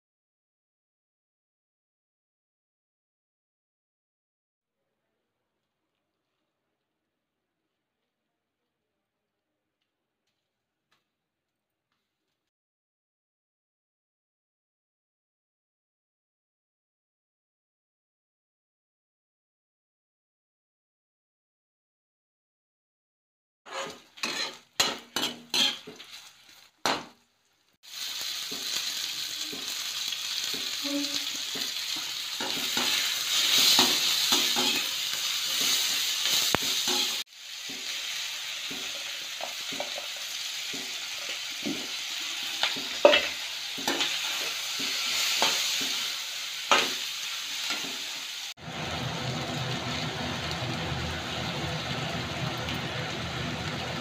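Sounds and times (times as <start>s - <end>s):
spatula scraping pan: 23.7s - 27.1s, 30.4s - 38.0s, 40.7s - 47.0s
vegetables sizzling in wok: 23.7s - 54.0s.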